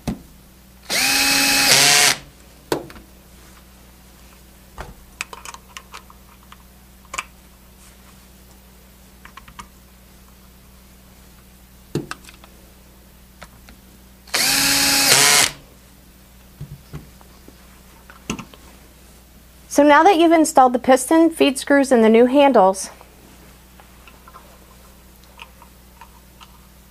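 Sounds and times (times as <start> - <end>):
cordless screw gun running: 0.9 - 2.3, 14.3 - 15.6.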